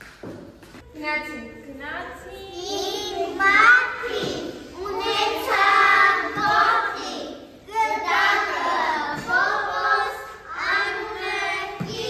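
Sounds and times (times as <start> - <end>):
young children singing: 2.6 - 12.0.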